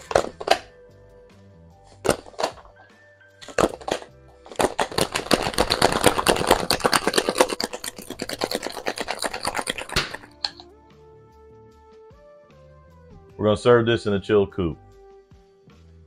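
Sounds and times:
faint background music: 0:00.0 - 0:16.0
ice rattling in cocktail shaker: 0:03.4 - 0:10.6.

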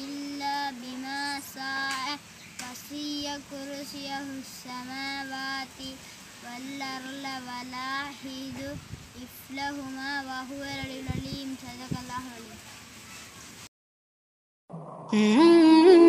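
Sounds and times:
boy chanting recitation: 0:00.0 - 0:12.6.

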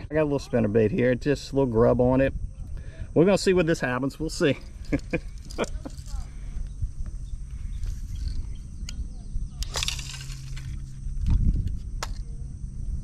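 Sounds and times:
wind rumbling on microphone: 0:00.0 - 0:13.0
fishing reel whirring and clicking: 0:07.8 - 0:11.4.

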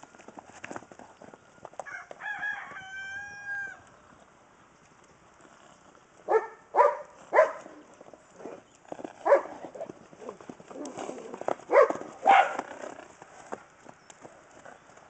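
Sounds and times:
rooster crowing: 0:01.8 - 0:03.8
dog barking: 0:06.3 - 0:07.7, 0:09.2 - 0:09.9, 0:11.7 - 0:12.6.

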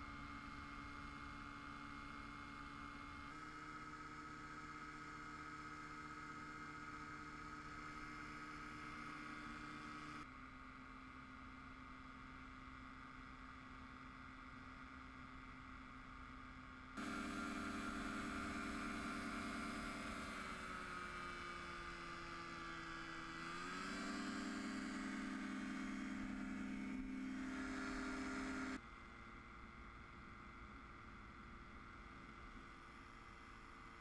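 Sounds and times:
propeller engine running: 0:17.0 - 0:28.8.

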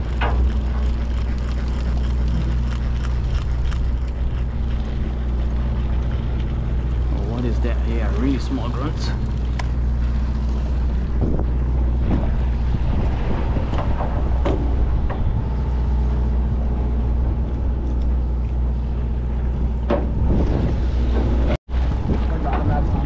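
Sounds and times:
boat engines droning: 0:00.0 - 0:23.0
wind noise on microphone: 0:10.4 - 0:18.0, 0:19.0 - 0:23.0.

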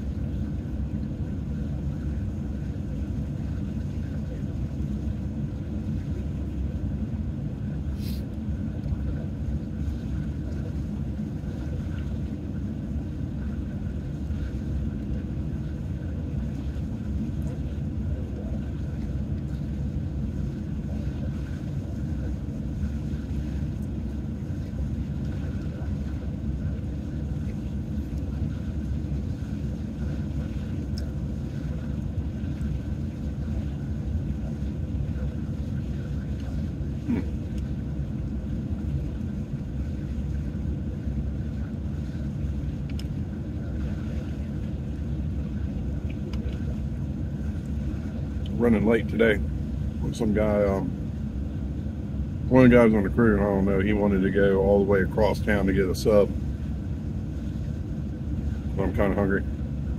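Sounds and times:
faint click: 0:42.9 - 0:43.1.

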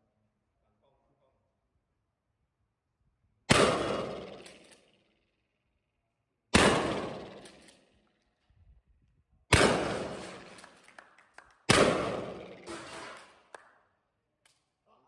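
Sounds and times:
echoing shotgun shots: 0:03.5 - 0:04.9, 0:06.5 - 0:07.8, 0:09.5 - 0:10.8, 0:11.7 - 0:13.3
shotgun action clicks: 0:04.4 - 0:05.0, 0:07.3 - 0:08.0.

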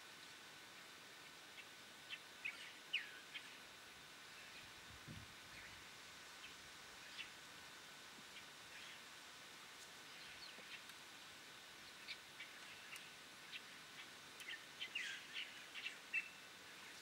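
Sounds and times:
birds chirping: 0:00.8 - 0:03.7, 0:11.7 - 0:17.0.

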